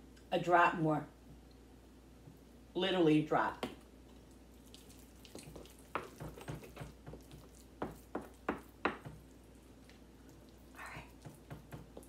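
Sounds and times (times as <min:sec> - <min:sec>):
wooden spoon mixing in bowl: 0:04.1 - 0:12.0.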